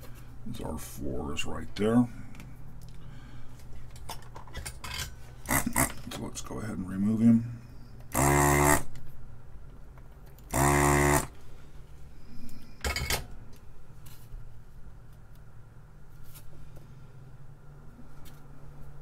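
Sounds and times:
desoldering pump sucking: 8.1s - 8.9s, 10.5s - 11.3s.

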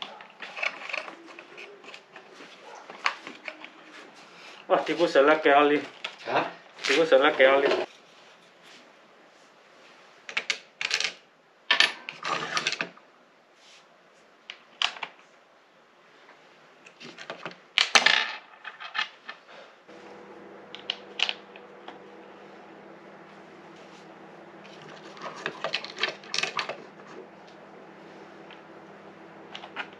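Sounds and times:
plastic parts and hardware rattling: 0.0s - 3.8s, 24.7s - 27.0s
steady low hum: 19.9s - 29.9s.

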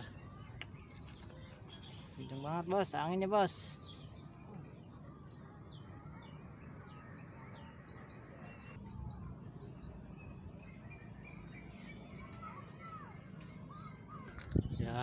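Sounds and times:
small birds chirping: 0.0s - 15.0s
wind rumble on microphone: 14.3s - 15.0s.

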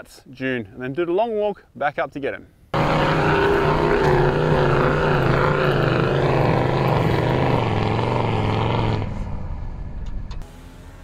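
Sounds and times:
wheels spinning in sand: 2.8s - 9.1s
engine running hard under load: 2.8s - 9.7s.

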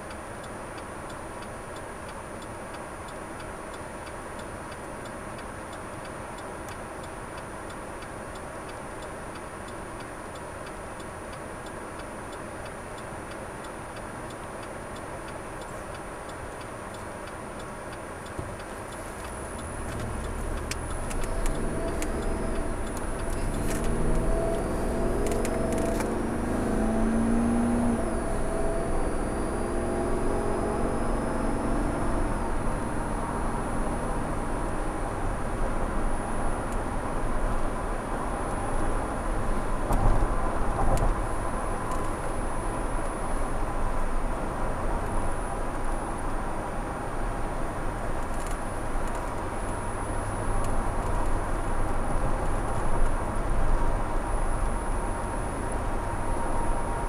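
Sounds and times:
turn signal ticking: 0.0s - 57.0s
car accelerating with tyre noise: 13.9s - 57.0s.

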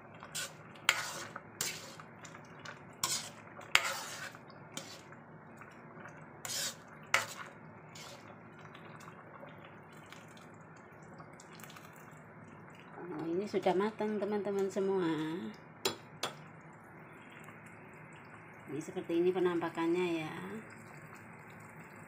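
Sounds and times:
soup sloshing and dripping: 0.0s - 13.3s
metal ladle scraping a wok: 0.3s - 2.0s, 3.0s - 5.1s, 6.4s - 8.3s.

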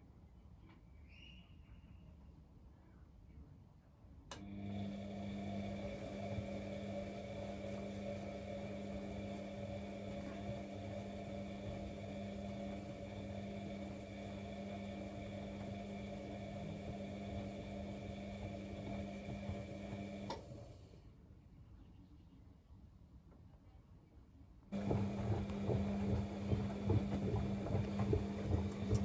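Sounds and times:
washing machine motor hum: 4.3s - 21.0s, 24.7s - 29.0s.

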